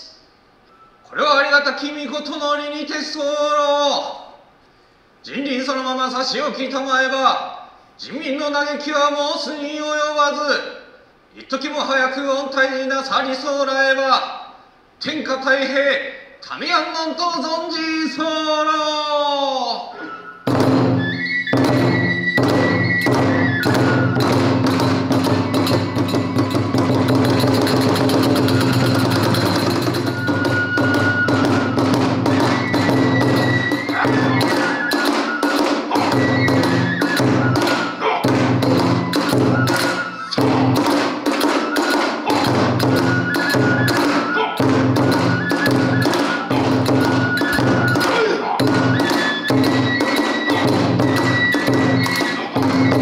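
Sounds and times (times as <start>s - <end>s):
high bamboo flute melody: 19.6s - 53.0s
barrel drum beating: 20.5s - 53.0s.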